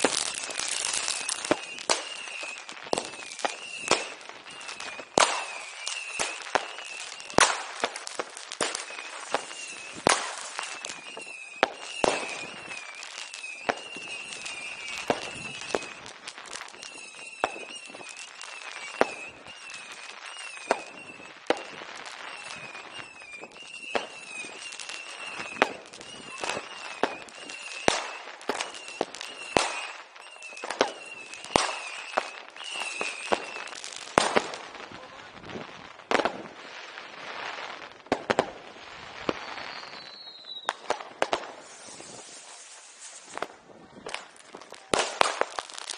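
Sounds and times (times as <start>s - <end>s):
firecrackers banging: 0.0s - 30.0s, 30.6s - 36.6s, 40.7s - 45.9s
crackling fireworks: 0.0s - 45.9s
falling whistle: 0.3s - 7.4s, 8.7s - 16.0s, 16.6s - 33.9s, 39.2s - 40.9s.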